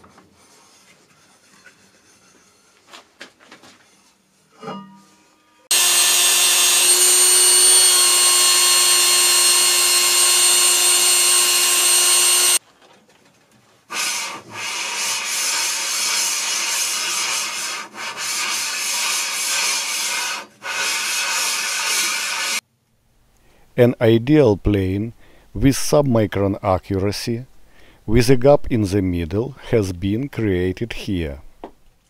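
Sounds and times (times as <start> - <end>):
abrasive grinding with high whine: 5.7 - 12.6.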